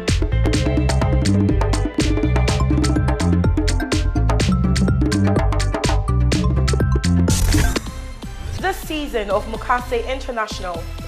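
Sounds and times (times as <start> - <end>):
steady drum beat: 0.0 - 7.5
bass line: 0.0 - 8.8.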